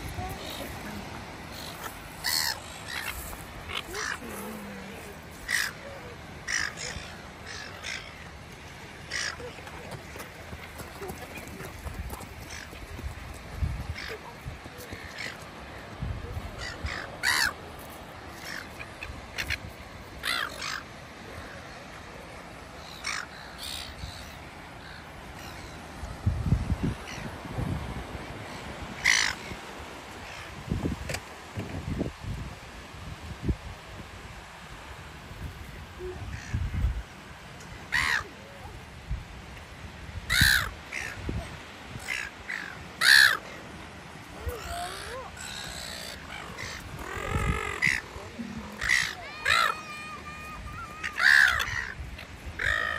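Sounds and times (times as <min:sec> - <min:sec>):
gulls squawking: 0:00.4 - 0:04.4, 0:05.4 - 0:08.3, 0:13.9 - 0:17.6, 0:28.5 - 0:29.6, 0:40.3 - 0:41.3, 0:42.0 - 0:43.4, 0:44.4 - 0:52.9.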